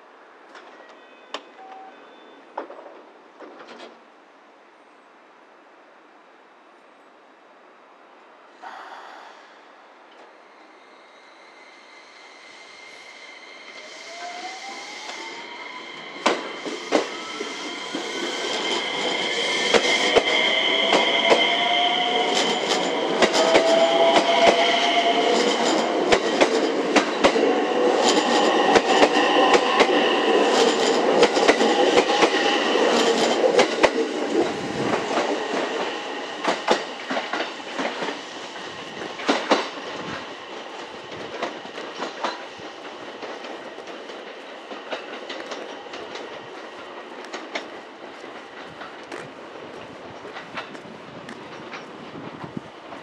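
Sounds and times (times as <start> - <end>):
electric train motors whining: 10.9 - 39.5
wheels clicking over rail joints: 39.0 - 53.0.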